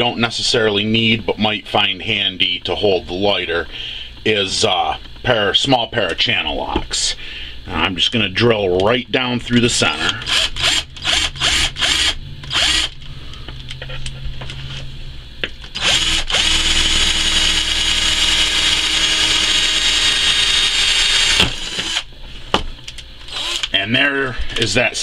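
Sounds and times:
power drill boring through plastic: 10.2s - 13.0s, 15.8s - 22.1s, 23.3s - 23.7s.

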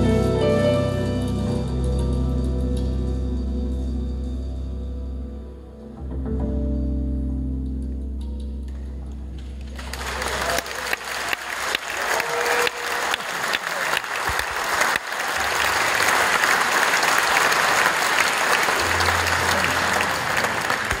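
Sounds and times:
audience applauding: 9.6s - 21.0s.

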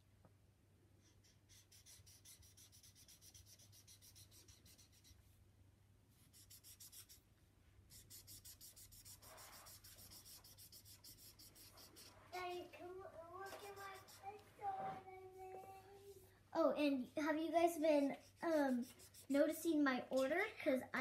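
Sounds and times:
marker scrubbing on paper: 1.0s - 5.2s, 6.2s - 7.2s, 7.9s - 12.6s, 13.3s - 14.4s, 17.8s - 19.6s.

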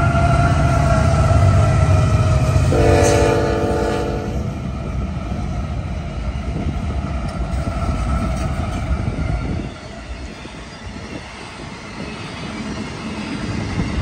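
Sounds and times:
freight locomotives rumbling: 0.0s - 14.0s
train horn chord: 2.6s - 4.6s.

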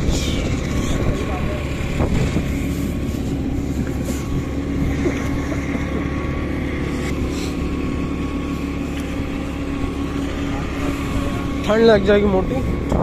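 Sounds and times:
wind rush: 0.0s - 5.4s, 9.3s - 13.0s
motorcycle engine drone: 0.0s - 13.0s.

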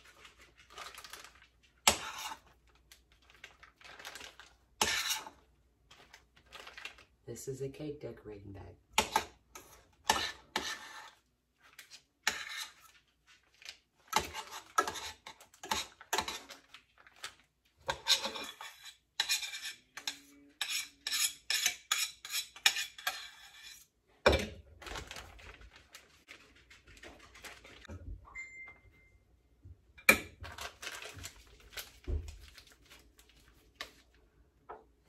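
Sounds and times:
metal spoon scraping saucepan: 1.9s - 2.5s, 4.8s - 5.4s, 9.0s - 11.2s, 11.8s - 13.0s, 14.1s - 16.7s, 17.8s - 24.4s.

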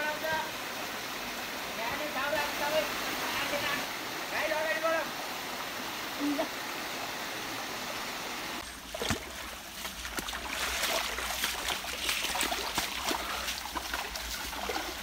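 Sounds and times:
running water hiss: 0.0s - 15.0s
feet splashing in water: 8.7s - 15.0s.

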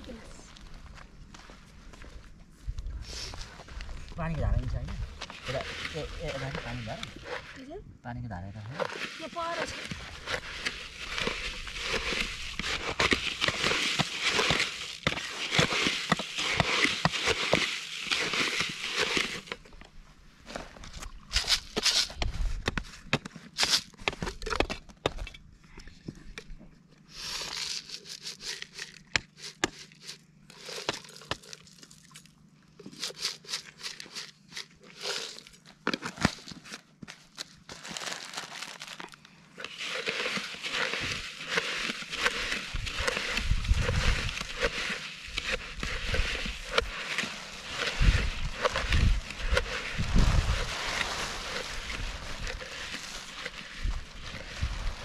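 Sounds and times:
wind buffeting microphone: 50.0s - 50.8s.

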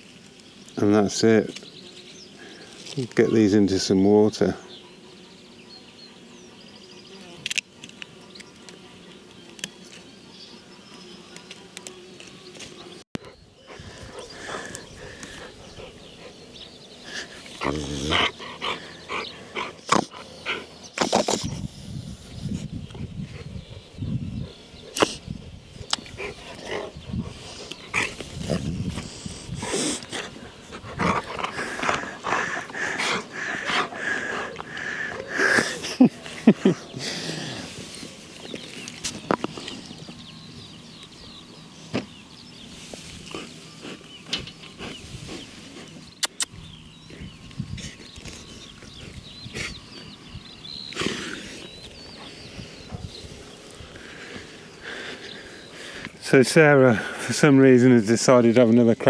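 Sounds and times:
dog play-growling and huffing: 17.6s - 20.7s, 26.1s - 35.9s
sharp clicks: 46.2s - 46.6s.

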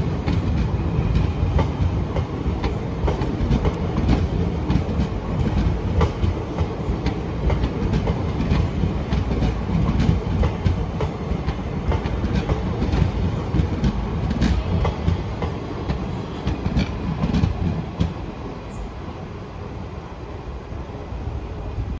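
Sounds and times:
wheels clacking over rail joints: 0.0s - 18.2s
train wheels rumbling on rails: 0.0s - 21.9s.

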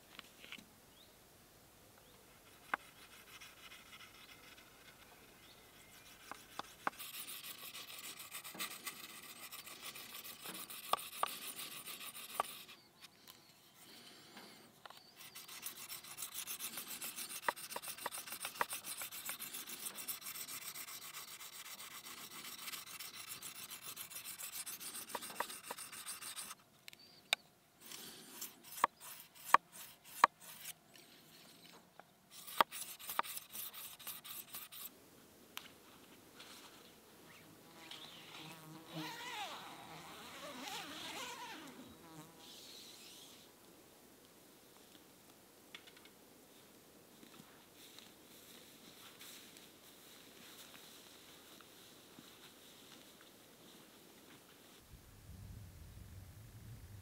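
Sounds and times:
knife scraping on whetstone: 6.0s - 12.8s, 15.1s - 26.6s, 27.8s - 30.7s, 32.3s - 34.9s.

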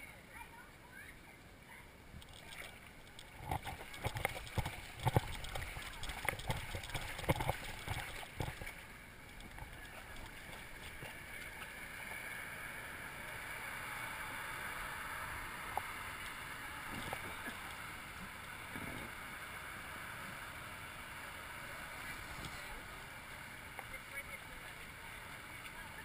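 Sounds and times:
water rushing and lapping: 1.7s - 26.0s
small water splashes: 2.2s - 12.7s.

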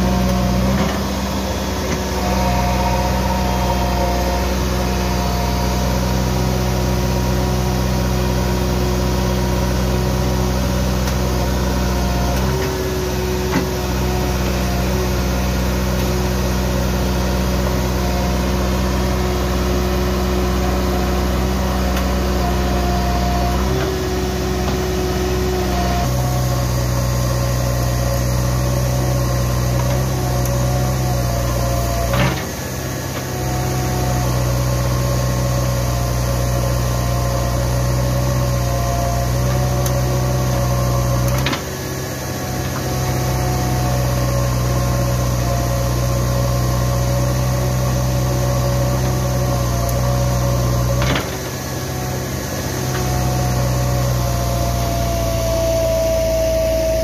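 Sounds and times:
diesel engine running: 0.0s - 57.0s.

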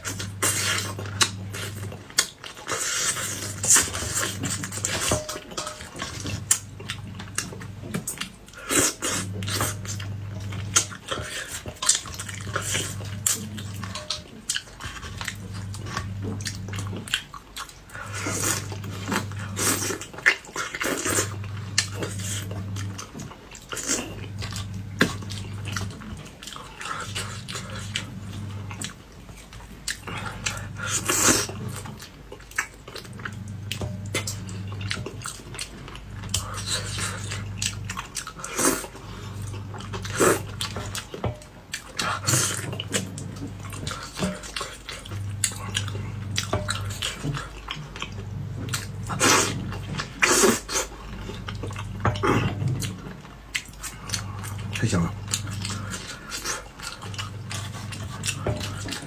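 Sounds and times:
wet eating slurps and smacks: 0.0s - 59.0s
low hum: 21.0s - 32.1s, 32.9s - 38.4s, 51.0s - 59.0s.

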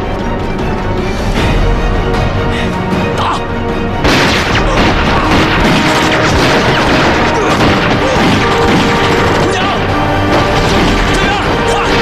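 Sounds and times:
background music: 0.0s - 12.0s
rifle fire: 4.0s - 12.0s.

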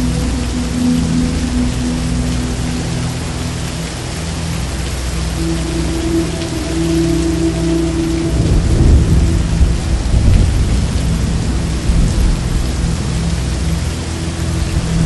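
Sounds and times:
heavy rain pouring: 0.0s - 15.0s
thunder rumbling: 5.5s - 13.3s.

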